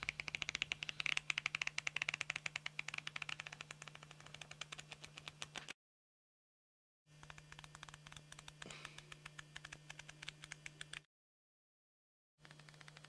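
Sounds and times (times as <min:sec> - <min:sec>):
flip book pages flicking: 0:00.0 - 0:05.8, 0:07.2 - 0:11.1.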